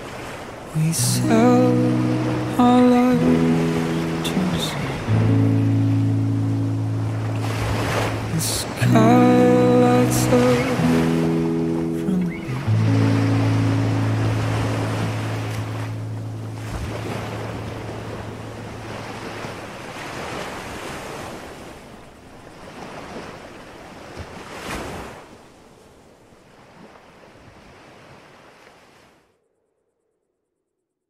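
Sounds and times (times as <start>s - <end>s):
sea waves washing on rocks: 0.0s - 5.5s, 7.1s - 21.9s
sharp wave splash: 0.0s - 21.8s
wind: 0.0s - 31.0s
low held music chord: 0.8s - 19.7s.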